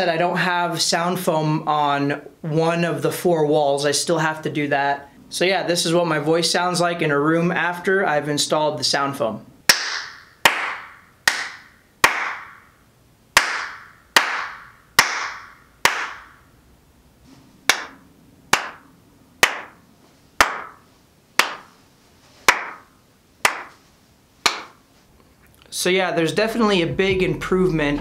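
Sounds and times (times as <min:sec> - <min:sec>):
hand claps: 0:09.7 - 0:12.6, 0:13.4 - 0:16.3, 0:17.7 - 0:19.8, 0:20.4 - 0:20.8, 0:21.4 - 0:21.8, 0:22.5 - 0:23.8, 0:24.4 - 0:24.8.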